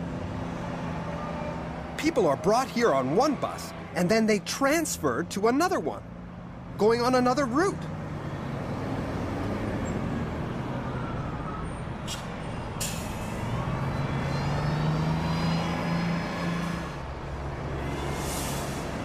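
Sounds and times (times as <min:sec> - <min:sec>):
bus engine revving pulling away: 0:00.0 - 0:03.3, 0:07.8 - 0:19.0
bus engines running: 0:00.0 - 0:19.0.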